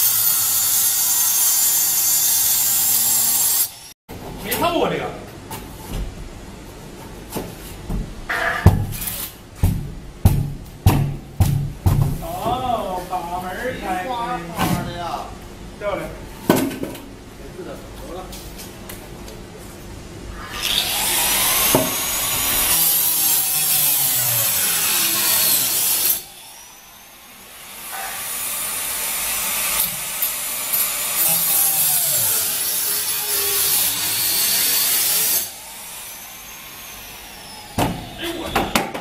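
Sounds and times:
saw cutting through foam panel: 0:00.0 - 0:04.0, 0:20.4 - 0:27.0, 0:27.6 - 0:38.4.

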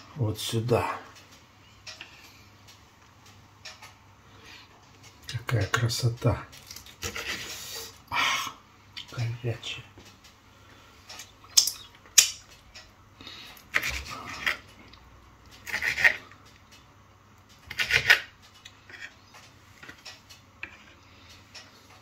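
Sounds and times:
knife crunchy cutting strokes: 0:07.0 - 0:08.0, 0:15.6 - 0:16.2, 0:17.7 - 0:18.3.

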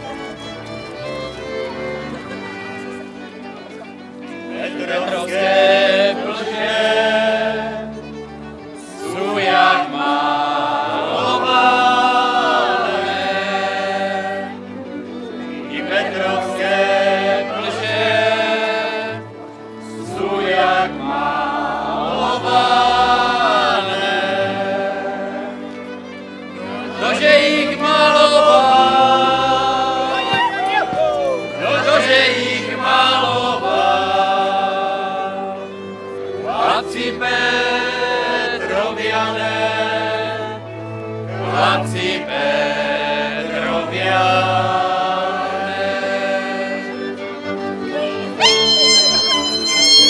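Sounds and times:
instrumental accompaniment: 0:00.0 - 0:50.0
group singing a folk song: 0:04.3 - 0:50.0.

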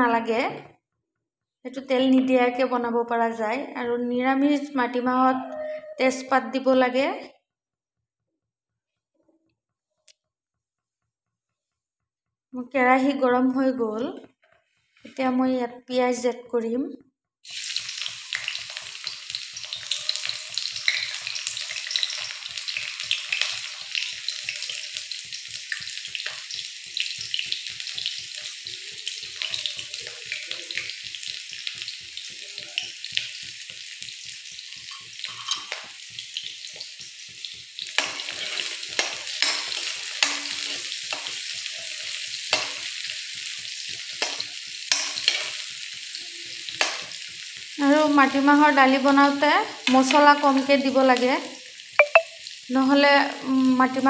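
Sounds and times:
spatula stirring in pan: 0:17.4 - 0:47.8
onions sizzling in hot oil: 0:17.4 - 0:54.0.

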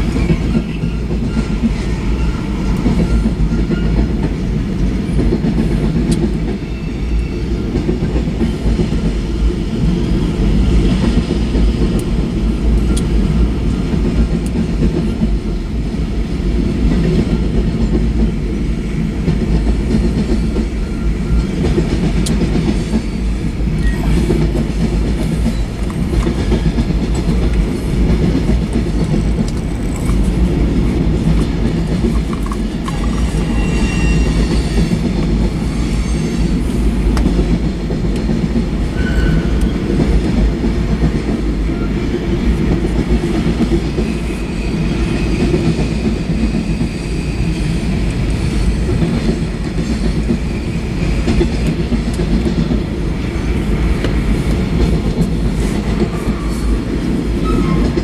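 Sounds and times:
train wheels squealing: 0:00.0 - 0:11.4, 0:20.2 - 0:21.8, 0:22.6 - 0:26.9, 0:32.9 - 0:37.0, 0:38.2 - 0:40.0, 0:43.7 - 0:51.8, 0:56.0 - 0:58.0
freight train wheels rumbling: 0:00.0 - 0:58.0.

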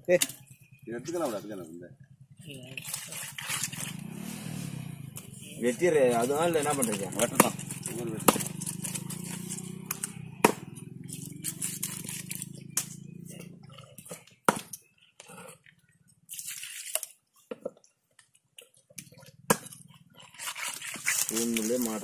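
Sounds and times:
knife chopping fish on wood: 0:07.2 - 0:10.7, 0:14.4 - 0:14.8.

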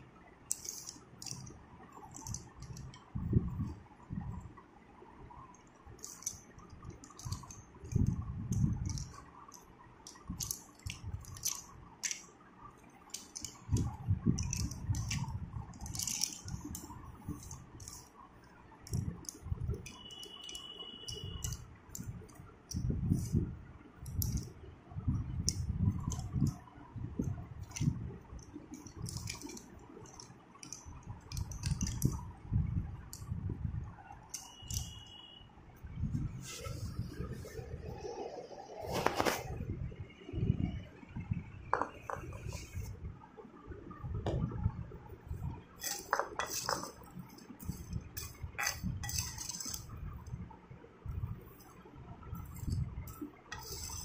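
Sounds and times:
chalk sticks clinking on concrete: 0:48.2 - 0:49.9.

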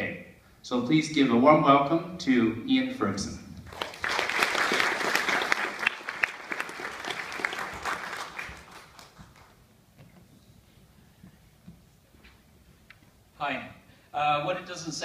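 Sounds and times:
audience applauding: 0:03.7 - 0:09.6.

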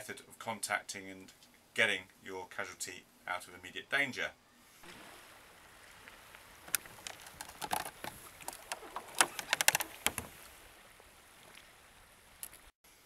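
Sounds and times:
metal connectors knocking on kayak: 0:06.7 - 0:10.3.

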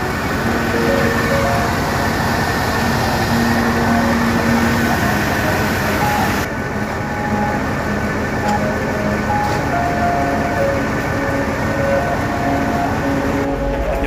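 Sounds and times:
mechanical running noise: 0:00.0 - 0:14.0.

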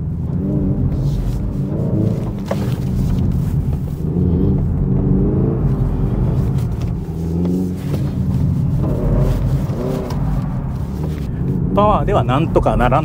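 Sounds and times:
electric car drive sound revving: 0:00.0 - 0:13.0.

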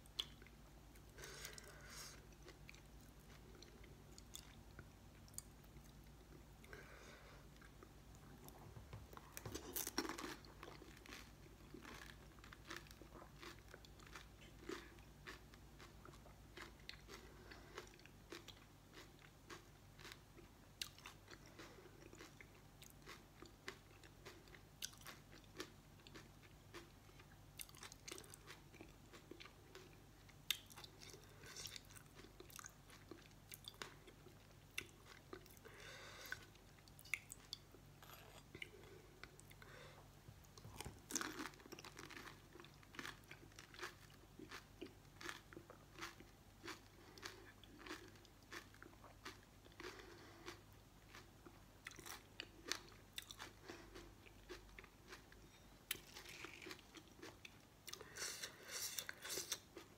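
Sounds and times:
crisp food crunching in mouth: 0:09.2 - 0:20.2, 0:40.6 - 0:55.3, 0:55.9 - 0:57.6.

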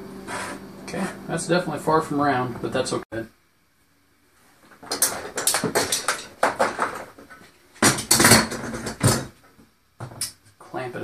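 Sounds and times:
metal clamps clattering: 0:04.8 - 0:09.3.

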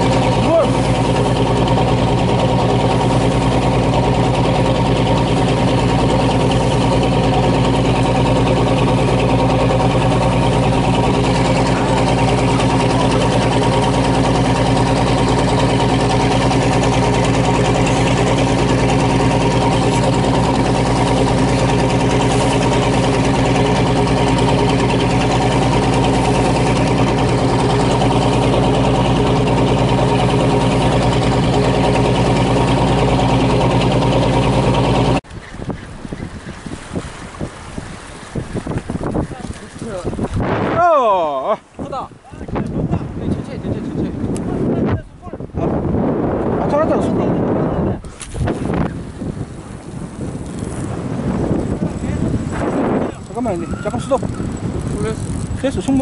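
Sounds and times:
rushing water: 0:00.0 - 0:44.7
boat engine drone: 0:00.0 - 0:56.0
wind: 0:00.0 - 0:56.0.

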